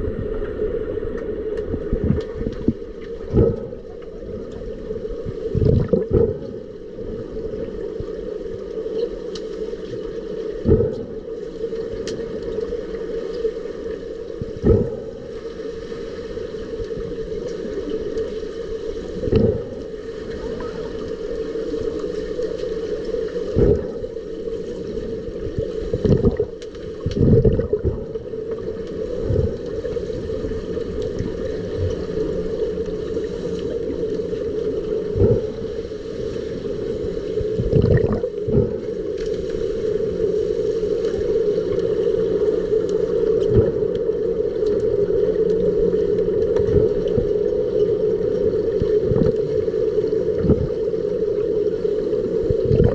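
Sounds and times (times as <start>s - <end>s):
muffled underwater hum: 0.0s - 52.9s
underwater knocks: 5.6s - 6.6s, 10.6s - 11.2s, 14.5s - 15.2s, 19.2s - 19.7s, 26.0s - 28.2s, 37.6s - 38.8s, 52.7s - 52.9s.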